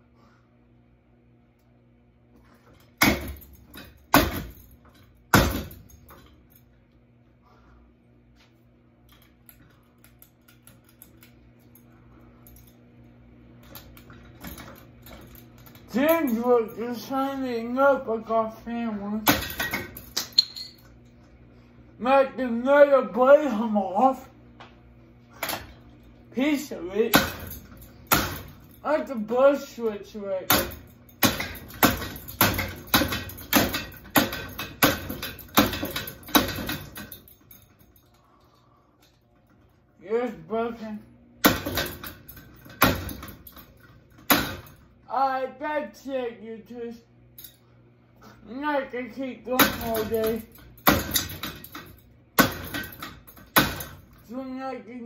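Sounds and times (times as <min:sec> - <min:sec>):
steady low hum: 0:00.0 - 0:55.0
pull chain clicking and jingling: 0:30.6 - 0:39.2.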